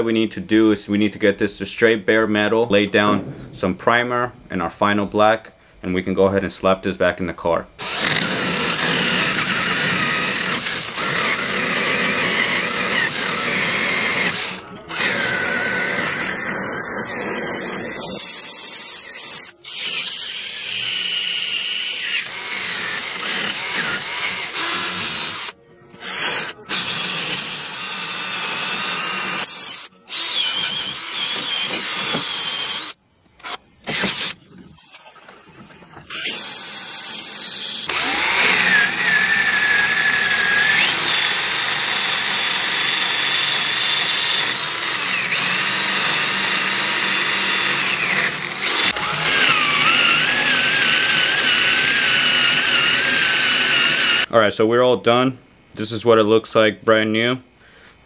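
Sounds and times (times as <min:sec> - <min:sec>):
drill wire brush scrubbing metal: 0:07.8 - 0:33.0, 0:36.1 - 0:54.3.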